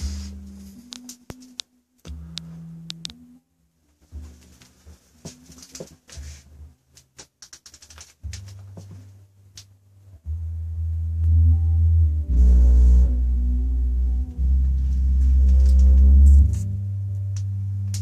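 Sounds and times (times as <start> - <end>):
deep bass notes from subwoofer: 0.0 - 0.9, 2.1 - 3.4, 8.2 - 18.0.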